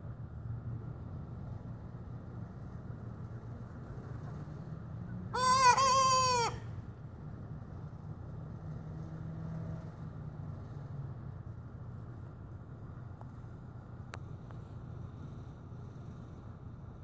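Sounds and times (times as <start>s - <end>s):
young rooster crowing: 5.4s - 6.7s.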